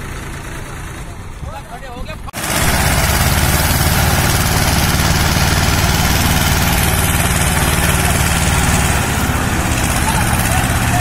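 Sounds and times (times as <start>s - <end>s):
diesel tractor engine running: 0.0s - 11.0s.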